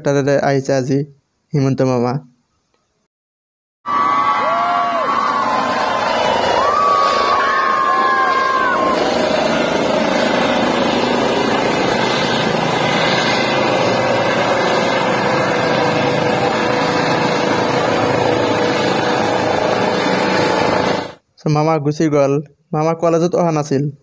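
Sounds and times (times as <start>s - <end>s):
helicopter rotors and turbines: 3.9s - 21.2s.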